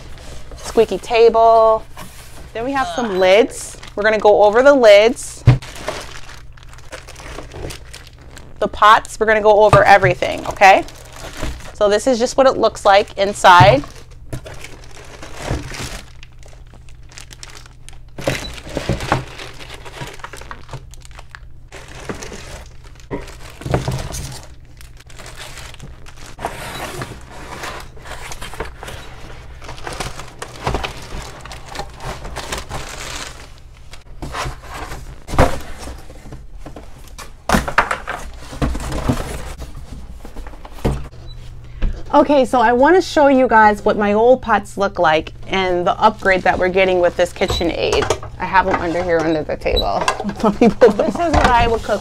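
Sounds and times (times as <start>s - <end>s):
cardboard rustling and scraping: 0.0s - 4.2s, 21.7s - 37.4s, 38.0s - 41.2s, 50.4s - 52.0s
plastic wrapping crinkling: 0.0s - 37.3s, 45.8s - 47.6s.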